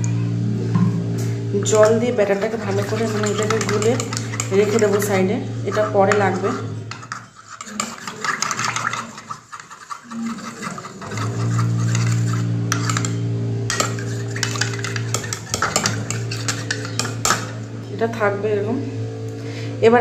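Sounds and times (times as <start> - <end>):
steady low hum: 0.0 - 20.0
spoon clinking against bowl: 2.4 - 5.1, 6.1 - 17.6.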